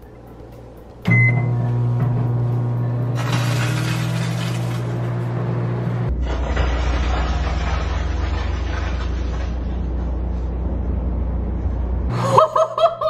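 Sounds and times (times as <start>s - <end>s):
microwave oven humming: 0.0s - 13.0s
microwave click: 1.0s - 3.1s.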